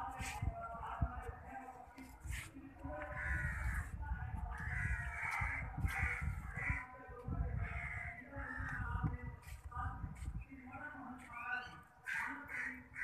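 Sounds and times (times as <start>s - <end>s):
low microphone rumble: 2.8s - 11.0s
crows cawing: 4.6s - 6.9s, 12.0s - 13.0s.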